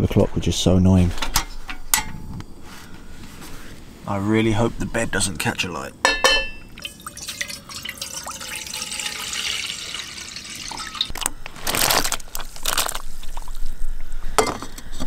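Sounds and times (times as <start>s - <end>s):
water pouring into metal saucepan: 6.7s - 11.1s.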